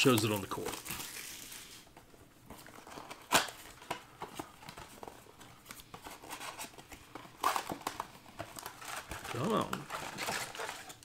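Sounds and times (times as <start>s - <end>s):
wrapper tearing: 0.0s - 1.9s, 2.6s - 4.0s, 8.6s - 11.0s
plastic wrapper crinkling: 0.0s - 11.0s.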